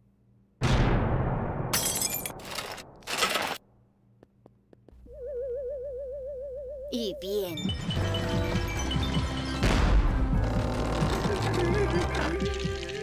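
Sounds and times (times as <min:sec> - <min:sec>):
wavering theremin-like tone: 0:05.1 - 0:07.0.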